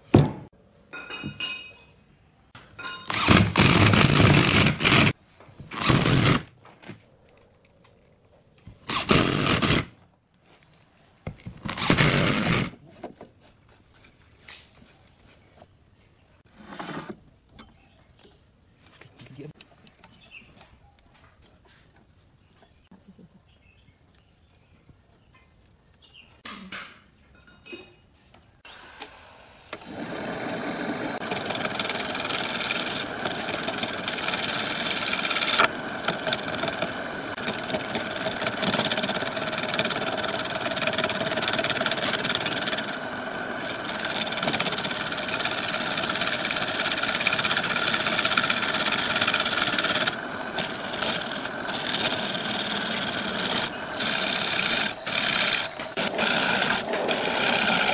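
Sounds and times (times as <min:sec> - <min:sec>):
lathe tool scraping wood: 0:03.1 - 0:06.5, 0:08.9 - 0:09.8, 0:11.7 - 0:12.7, 0:28.7 - 0:57.9.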